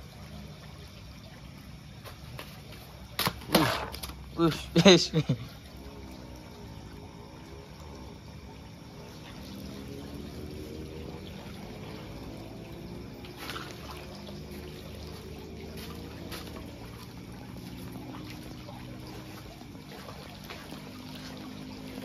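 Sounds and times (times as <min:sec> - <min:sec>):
trickle of running water: 0:00.0 - 0:22.0.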